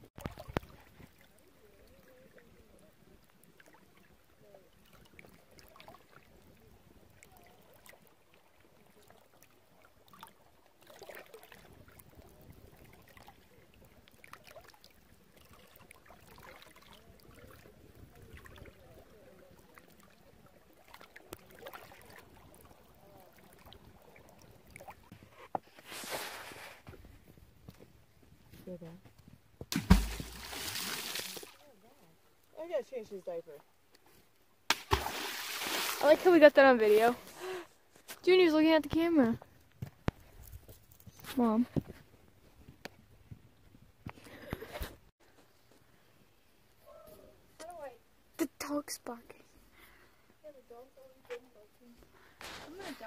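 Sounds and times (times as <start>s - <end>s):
creek water trickling: 0.1s - 25.2s, 29.7s - 41.6s
soft water splashes: 0.1s - 25.2s, 29.7s - 32.6s, 33.5s - 37.6s.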